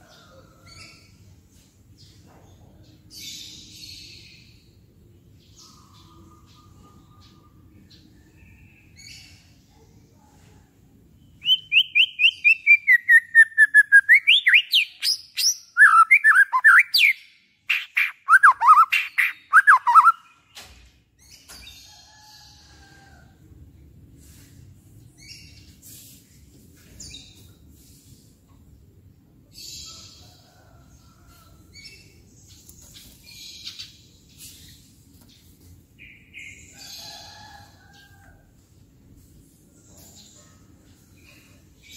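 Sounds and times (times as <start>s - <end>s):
songbird singing loudly: 11.4s - 20.3s.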